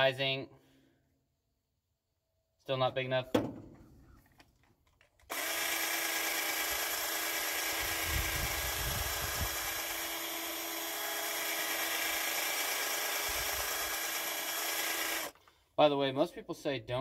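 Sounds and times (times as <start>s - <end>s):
cordless drill running: 5.3s - 15.4s.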